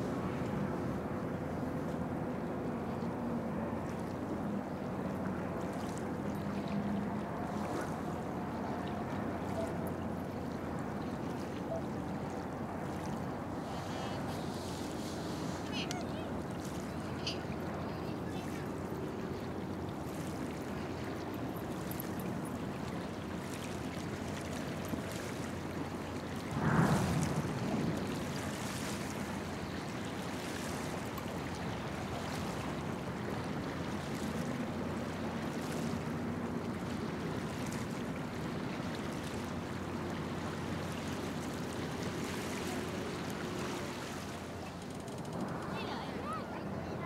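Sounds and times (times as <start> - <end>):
small waves lapping: 0.0 - 47.0
low machinery hum: 22.1 - 30.6
brief loud sound: 26.5 - 28.2.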